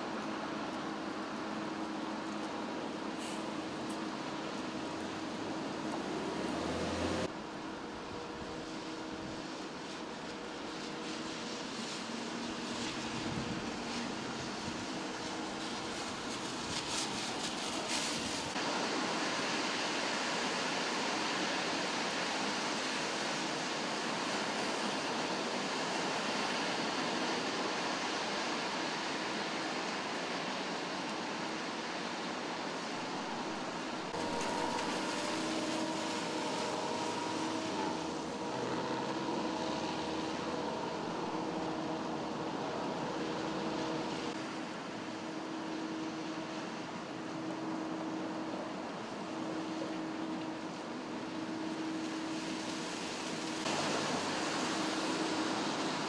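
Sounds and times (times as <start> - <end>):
rain hissing: 0.0 - 7.3, 8.1 - 56.0
mechanical hum: 0.0 - 56.0.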